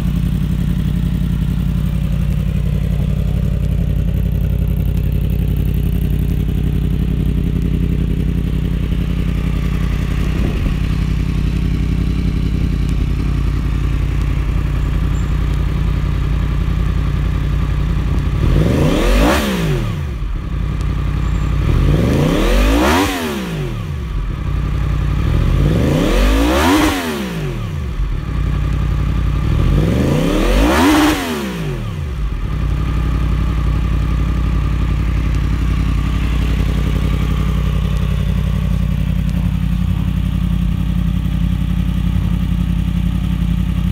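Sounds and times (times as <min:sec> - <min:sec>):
motorcycle engine idling and revving: 0:00.0 - 0:43.9.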